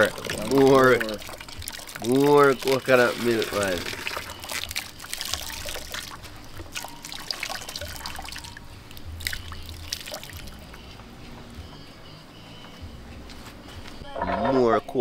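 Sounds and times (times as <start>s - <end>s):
liquid pouring into a pot: 0.0s - 10.6s
small splashes and drips: 0.0s - 11.0s.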